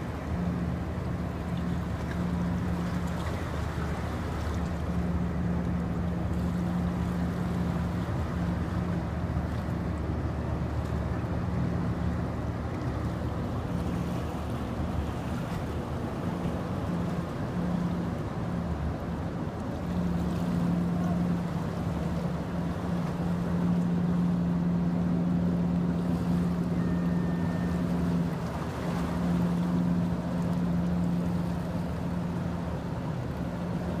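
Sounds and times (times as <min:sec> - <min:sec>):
ship diesel engines rumbling: 0:00.0 - 0:34.0
water wash: 0:00.0 - 0:34.0
wind: 0:00.0 - 0:34.0.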